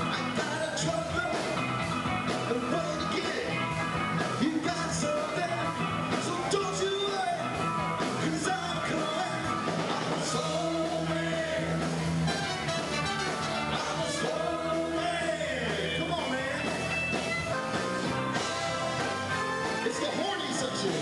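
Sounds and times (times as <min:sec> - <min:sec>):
rock and roll band music: 0:00.0 - 0:21.0
person singing: 0:10.0 - 0:11.8, 0:13.7 - 0:16.8.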